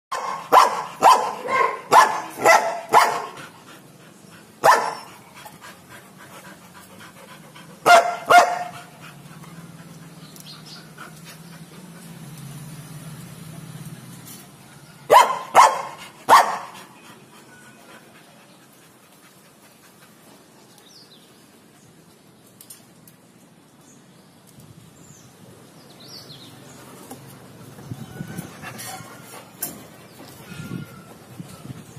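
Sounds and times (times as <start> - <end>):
dogs barking: 0.1 - 3.4, 4.6 - 5.2, 7.8 - 9.1, 15.1 - 17.0.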